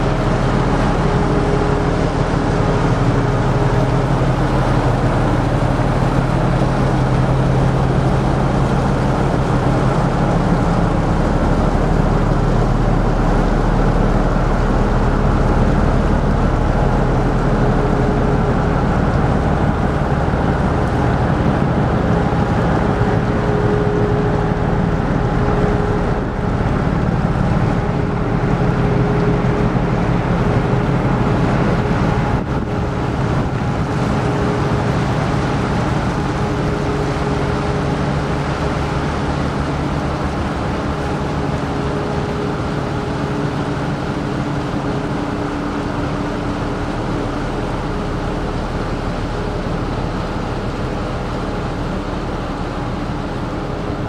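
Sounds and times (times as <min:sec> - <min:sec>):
ship engines droning: 0:00.0 - 0:54.0.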